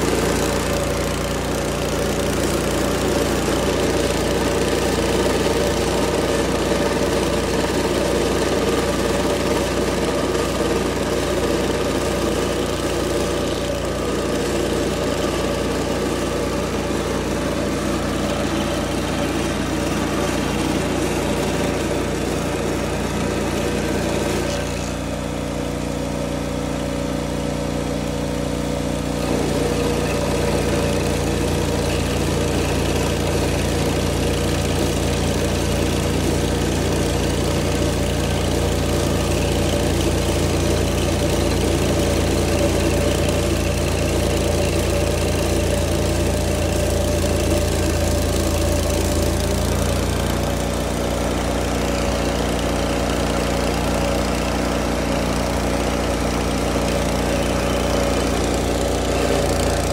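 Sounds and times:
stump grinder engine running: 0.0s - 59.9s.

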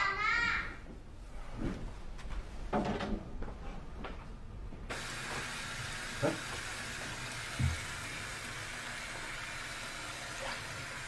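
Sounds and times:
tap water running into basin: 4.9s - 11.0s.

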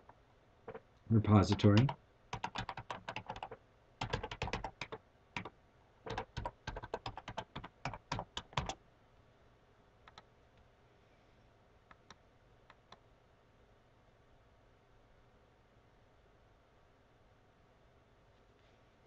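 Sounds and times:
computer keyboard typing: 1.4s - 5.5s, 6.1s - 8.8s.

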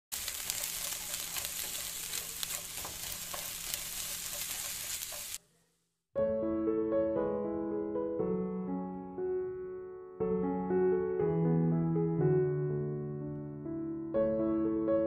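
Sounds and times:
food sizzling in a pan: 0.1s - 5.9s
piano music: 6.2s - 15.0s.

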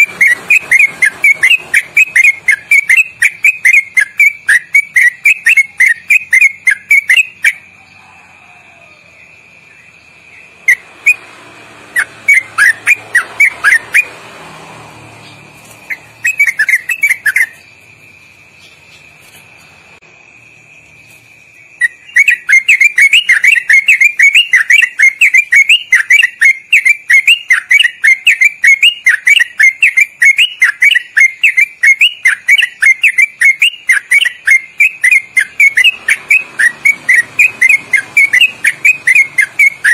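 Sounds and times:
bulbul singing: 0.0s - 39.9s.

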